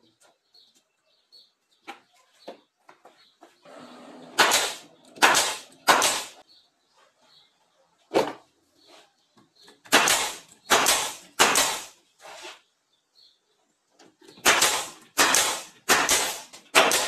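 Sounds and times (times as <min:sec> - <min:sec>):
nail gun firing: 0:04.3 - 0:06.4, 0:09.8 - 0:12.0, 0:14.4 - 0:17.0.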